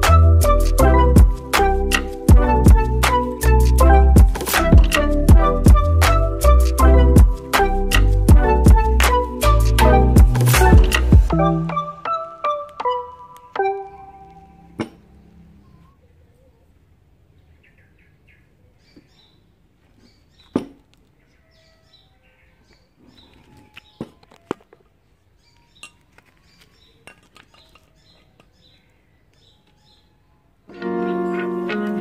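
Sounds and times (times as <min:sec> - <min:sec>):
faint chirping: 0:14.6 - 0:16.8
metal screws and nuts clinking: 0:27.0 - 0:28.6.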